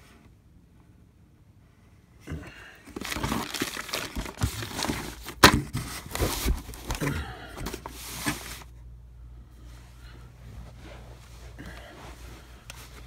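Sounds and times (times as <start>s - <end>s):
plastic bag crinkling: 2.9s - 5.4s.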